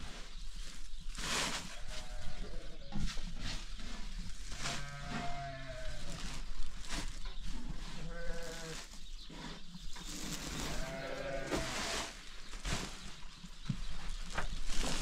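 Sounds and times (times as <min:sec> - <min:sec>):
sheep bleating: 0:10.8 - 0:11.7.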